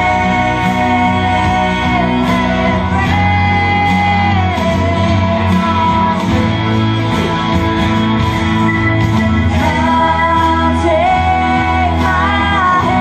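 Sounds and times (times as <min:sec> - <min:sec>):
group singing held notes: 0:00.0 - 0:06.3
guitar music: 0:00.0 - 0:13.0.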